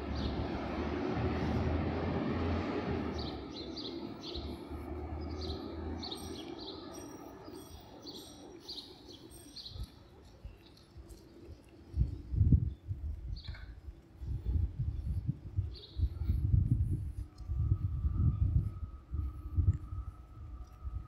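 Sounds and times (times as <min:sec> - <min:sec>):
city traffic hum: 0:00.0 - 0:21.0
small birds chirping: 0:03.2 - 0:16.4.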